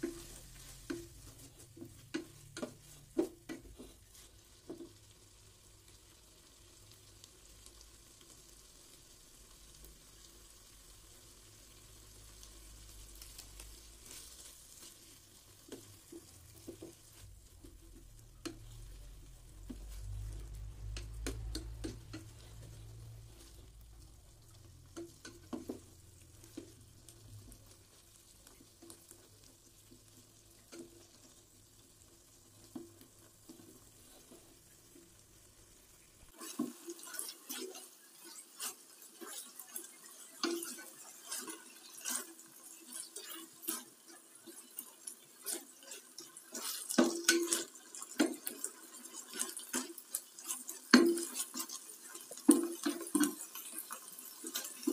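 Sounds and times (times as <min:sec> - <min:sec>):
spatula scraping metal pot: 0:36.3 - 0:54.9.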